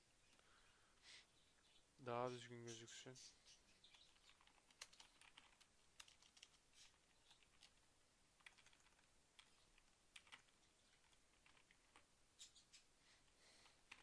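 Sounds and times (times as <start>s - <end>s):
keyboard typing: 3.8s - 12.8s, 13.6s - 14.0s.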